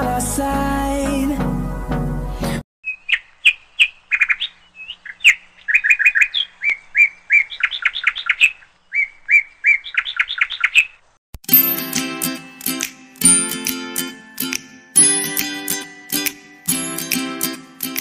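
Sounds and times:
music: 0.0 - 2.6, 11.5 - 18.0
bird chirping: 2.8 - 11.1.

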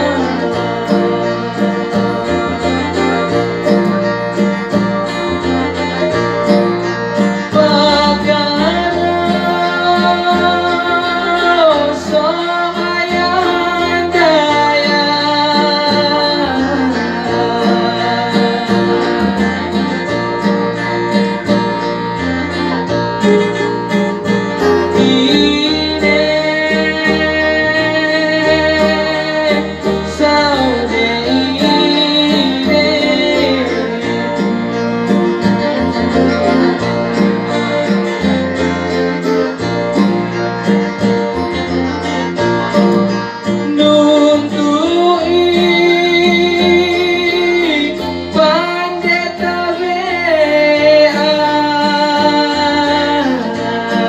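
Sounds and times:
man singing into microphone: 0.0 - 3.2, 7.4 - 20.9, 24.6 - 35.8, 43.4 - 54.0
electronic keyboard accompaniment: 0.0 - 54.0.

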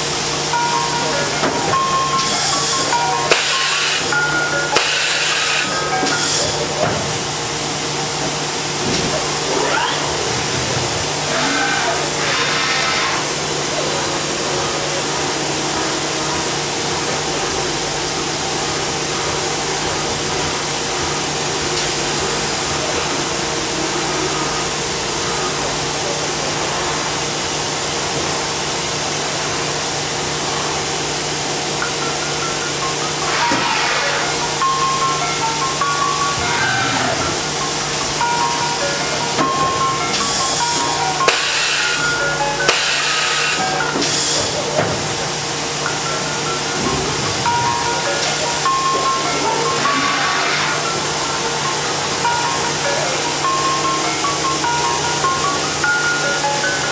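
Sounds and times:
machine hiss: 0.0 - 23.3, 26.2 - 56.9.

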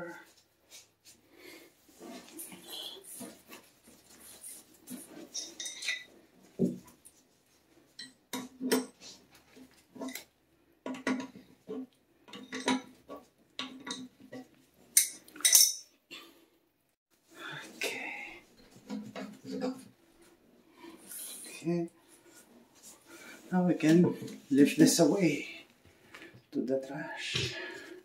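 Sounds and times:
metal clinks and taps: 15.0 - 15.9.

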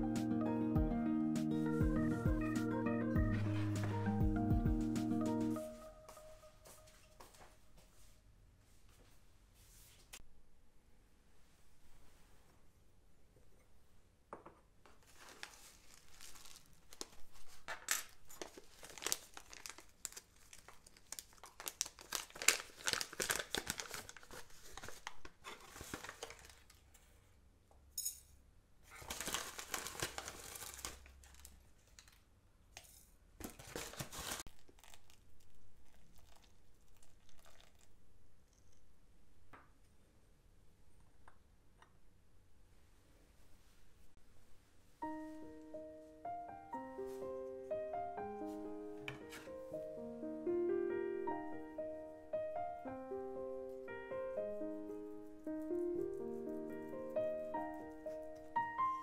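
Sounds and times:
foil packet crinkling: 15.0 - 26.9, 28.9 - 32.2, 33.4 - 37.9.

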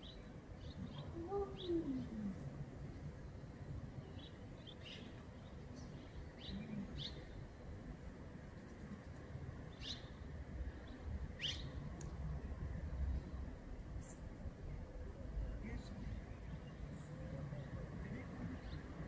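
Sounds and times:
small birds chirping: 0.0 - 2.4, 3.3 - 7.8, 8.6 - 12.2.

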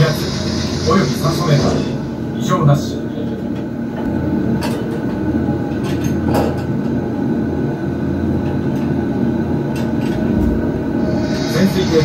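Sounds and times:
ride vehicle rumble and hum: 3.1 - 12.0.

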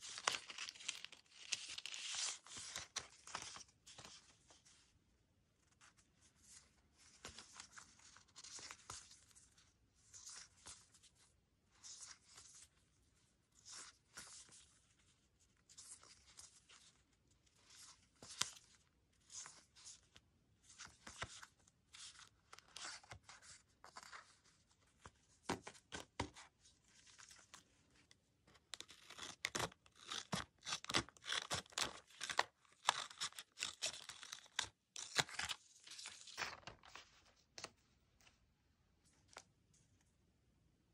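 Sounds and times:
scissors snipping paper: 28.8 - 35.5
paper rustling: 30.9 - 37.8.

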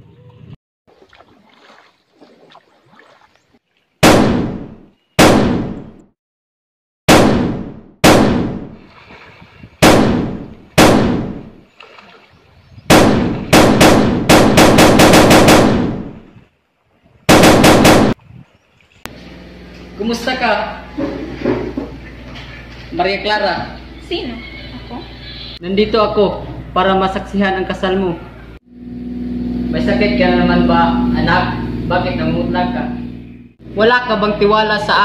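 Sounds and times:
automatic gunfire bursts: 4.0 - 4.6, 5.2 - 5.9, 7.1 - 8.6, 9.8 - 11.5, 12.9 - 16.2, 17.3 - 18.2
single gunshots echoing: 4.0 - 6.0, 7.1 - 8.8, 9.8 - 11.6, 12.9 - 16.3, 17.3 - 18.2.

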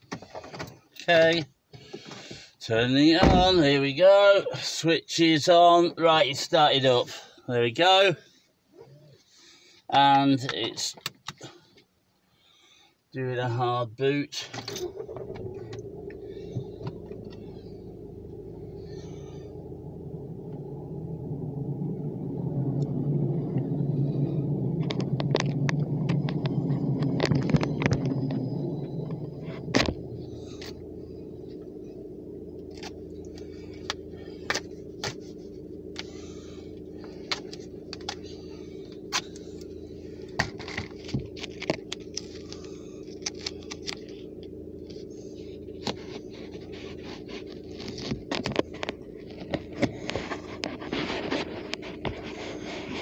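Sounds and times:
low hum inside car: 0.0 - 53.0
rumbling noise: 15.0 - 53.0.

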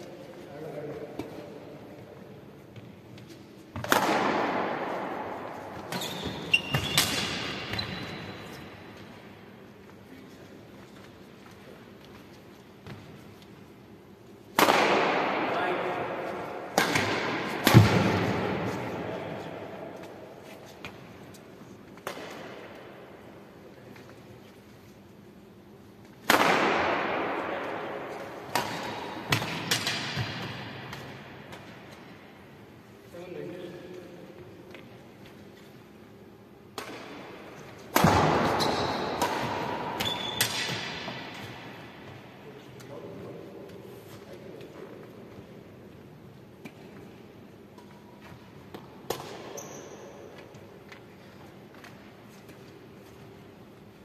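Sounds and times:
racket hitting shuttlecock: 3.7 - 8.6, 14.5 - 15.5, 16.1 - 19.0, 21.9 - 23.0, 26.0 - 32.1, 36.7 - 42.2, 46.5 - 51.1
shoe squeaking on wooden court: 5.8 - 8.8, 38.4 - 39.2, 39.9 - 40.8, 49.3 - 50.6.

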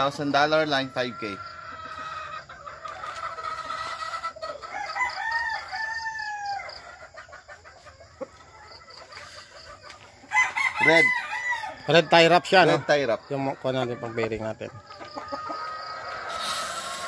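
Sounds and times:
roosters crowing: 0.0 - 7.4, 8.5 - 17.0.

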